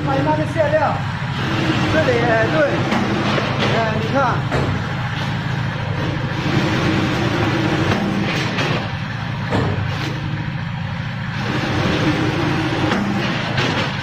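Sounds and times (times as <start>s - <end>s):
packing machine humming: 0.0s - 14.0s
machine clacks: 1.4s - 4.8s, 6.3s - 10.3s, 11.4s - 14.0s.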